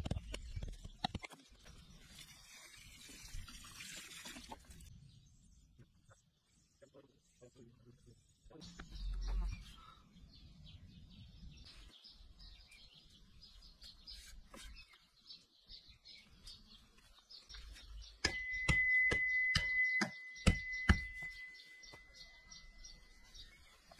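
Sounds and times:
faint birdsong: 0:04.7 - 0:23.9
metal hammer striking wooden post: 0:18.2 - 0:21.4
high ringing tone: 0:18.3 - 0:22.8.

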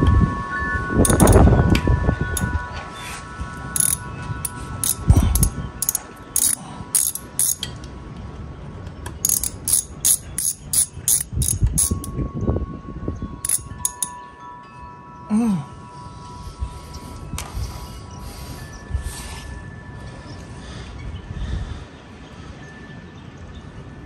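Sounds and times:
ratchet clicking: 0:01.0 - 0:01.4, 0:03.8 - 0:07.7, 0:09.2 - 0:12.2, 0:13.4 - 0:14.2.

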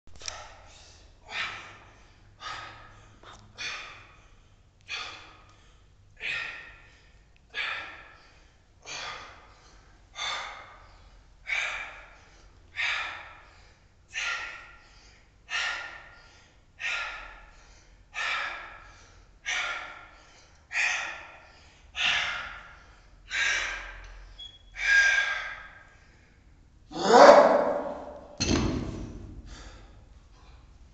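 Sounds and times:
man breathing hard: 0:00.2 - 0:26.7, 0:29.1 - 0:30.8.

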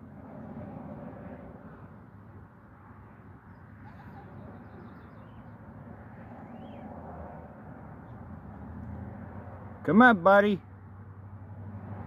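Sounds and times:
faint bird chirps: 0:06.4 - 0:06.9.

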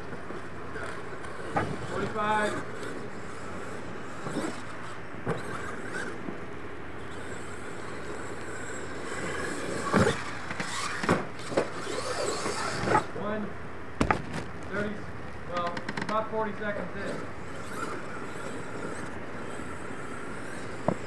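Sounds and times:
toy truck motor and tyre noise: 0:00.0 - 0:13.2, 0:15.6 - 0:21.0
sharp knocks: 0:14.0 - 0:14.8.

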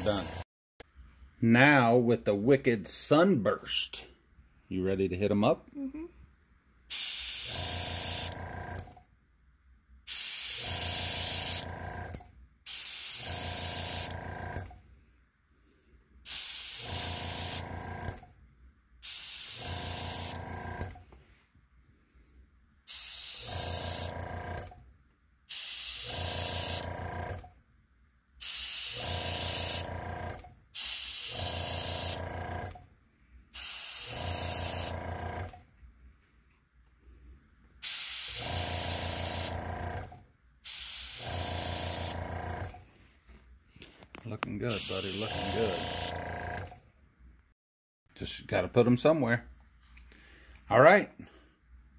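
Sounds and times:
small compressor humming: 0:00.0 - 0:00.4, 0:06.9 - 0:09.0, 0:10.1 - 0:14.8, 0:16.3 - 0:18.4, 0:19.0 - 0:21.2, 0:22.9 - 0:24.8, 0:25.5 - 0:27.6, 0:28.4 - 0:32.9, 0:33.6 - 0:35.7, 0:37.8 - 0:43.0, 0:44.6 - 0:46.9
airbrush hissing: 0:06.9 - 0:08.3, 0:10.1 - 0:11.6, 0:12.7 - 0:14.1, 0:16.3 - 0:17.7, 0:19.0 - 0:20.4, 0:22.9 - 0:24.1, 0:25.5 - 0:26.8, 0:28.4 - 0:29.8, 0:30.8 - 0:32.2, 0:33.6 - 0:35.0, 0:37.8 - 0:39.6, 0:40.7 - 0:42.2, 0:44.7 - 0:46.2.

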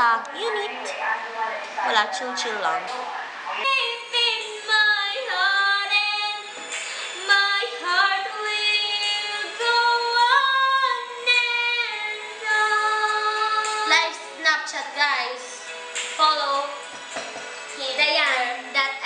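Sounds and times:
girl singing: 0:03.6 - 0:06.6, 0:07.2 - 0:15.6.

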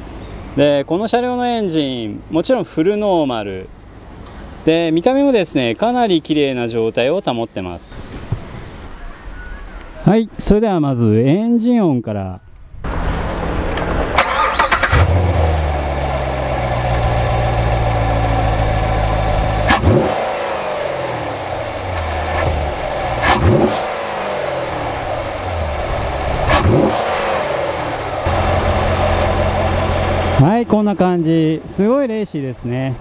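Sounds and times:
car engine idling and revving: 0:12.8 - 0:31.7.

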